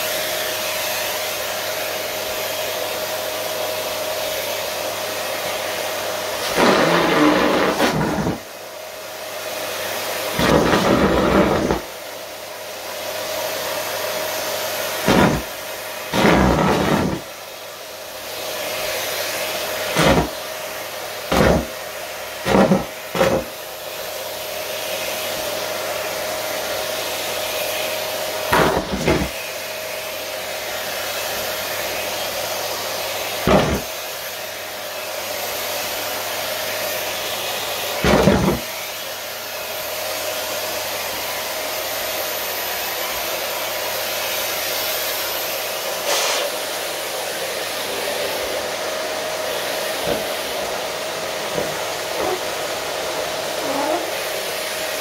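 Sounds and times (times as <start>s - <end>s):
vacuum cleaner running: 0.0s - 55.0s
boot stomping on wooden floor: 15.1s - 15.5s, 16.2s - 17.3s, 20.0s - 20.4s, 21.3s - 21.8s, 22.5s - 23.5s, 28.5s - 29.4s, 33.5s - 33.9s, 38.0s - 38.7s, 50.0s - 50.3s, 51.5s - 52.4s.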